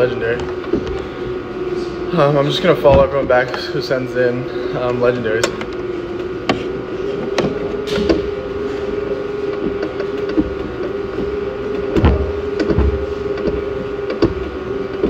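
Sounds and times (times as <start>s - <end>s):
steady mechanical hum: 0.0s - 15.0s
dull low bumps: 5.5s - 15.0s.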